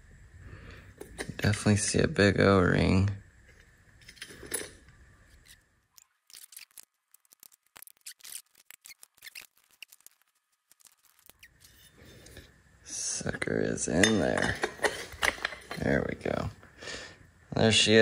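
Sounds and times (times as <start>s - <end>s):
hand tool clicking and scraping: 13.9s - 16.0s.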